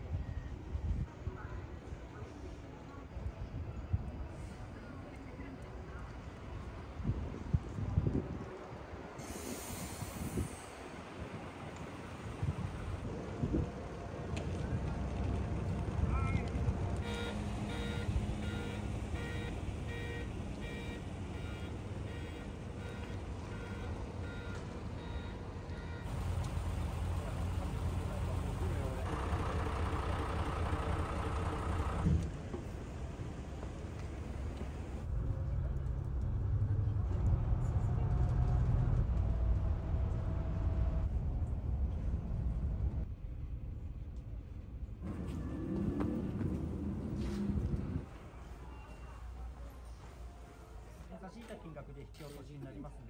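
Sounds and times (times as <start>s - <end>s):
bus engine running: 8.2s - 51.1s
electronic warning beeps: 17.1s - 26.1s.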